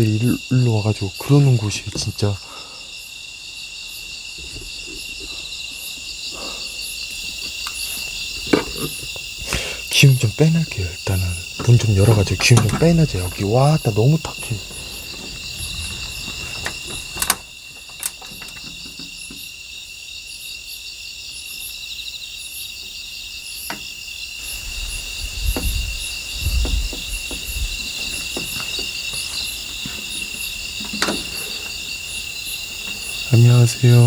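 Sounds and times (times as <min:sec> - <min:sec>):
crickets chirping: 0:00.0 - 0:34.0
metal door clicks and knocks: 0:11.6 - 0:19.5, 0:26.5 - 0:29.0, 0:30.1 - 0:31.5.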